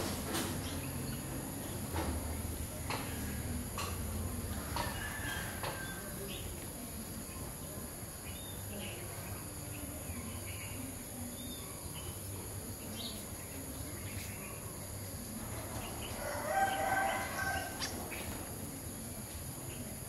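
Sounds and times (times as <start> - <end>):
small birds chirping: 0.5 - 20.0
rooster crowing: 4.7 - 6.0, 16.2 - 17.9.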